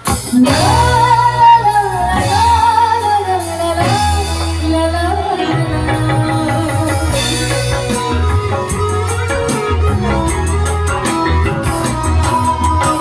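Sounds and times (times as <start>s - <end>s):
woman singing into microphone: 0.0s - 9.3s
live band playing: 0.0s - 13.0s.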